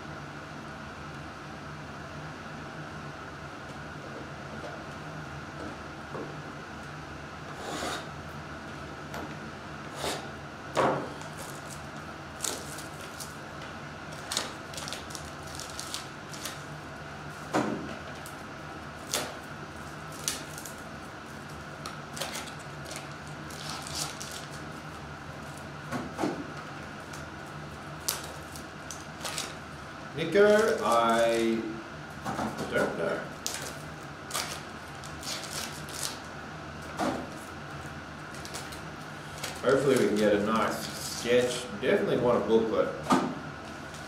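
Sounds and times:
faint hum: 0.0s - 44.0s
card packs crinkling and rustling: 11.2s - 13.4s, 14.1s - 16.7s, 19.8s - 25.7s, 28.0s - 29.6s, 30.2s - 31.6s, 32.7s - 36.3s, 38.3s - 41.6s.

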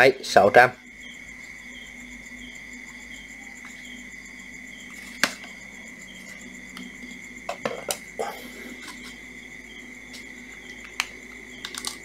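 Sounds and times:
plastic tools knocking on tiled floor: 7.5s - 8.0s.

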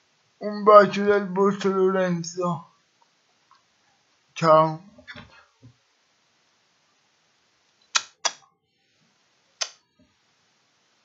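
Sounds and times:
sharp clicks: 7.9s - 8.4s.

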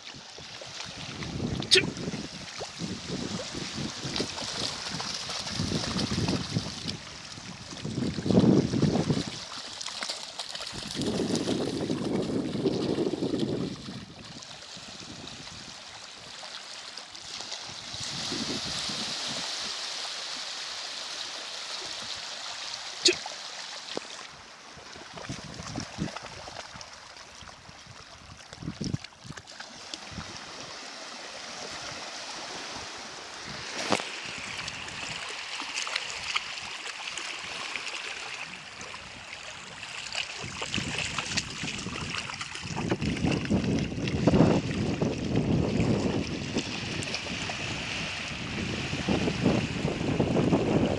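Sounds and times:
water lapping at shore: 0.0s - 50.9s
wind gusts on microphone: 0.8s - 9.4s, 10.7s - 15.8s, 17.7s - 19.8s, 24.8s - 26.6s, 27.6s - 29.4s, 30.0s - 35.3s, 38.4s - 50.9s.

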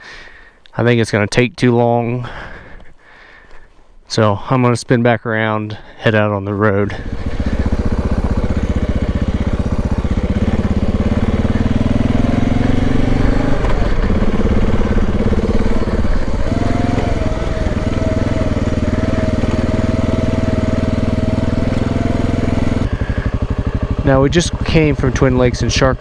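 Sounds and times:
motorcycle engine running: 6.8s - 26.0s.

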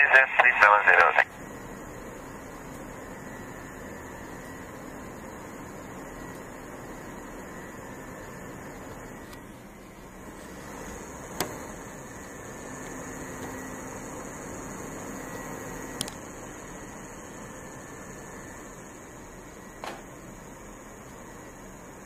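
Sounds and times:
sharp radio clicks: 0.0s - 1.3s
radio hiss: 0.0s - 1.7s.

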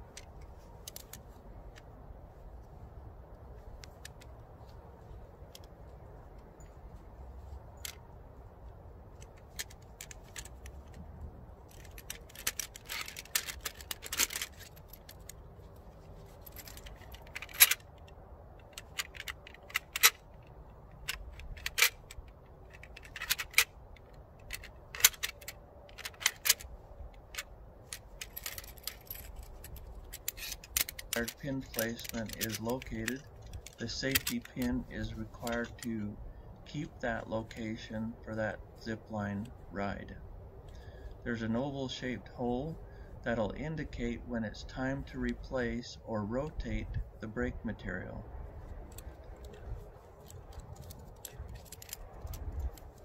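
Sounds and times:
metal clicks and clinks: 11.7s - 36.0s, 48.8s - 53.0s.

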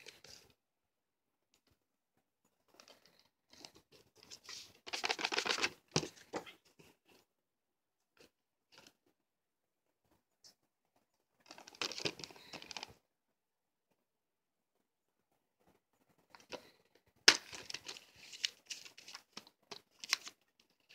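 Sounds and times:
plastic shrink wrap crinkling and tearing: 4.3s - 5.8s, 11.4s - 13.0s.

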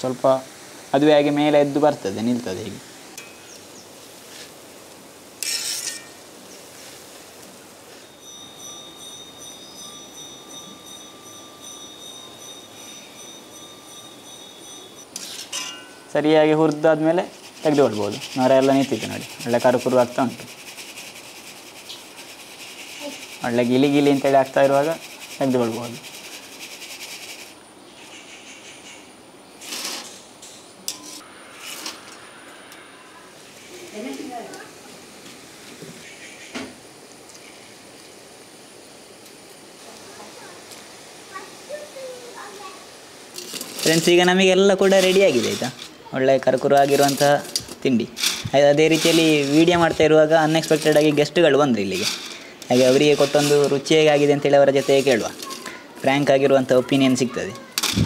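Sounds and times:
faint frying oil hiss: 0.0s - 8.9s, 14.9s - 58.0s
faint high ringing tone: 3.2s - 3.6s, 7.6s - 16.7s, 30.4s - 33.8s
fried rings clattering into strainer: 46.5s - 49.7s, 51.8s - 55.7s.

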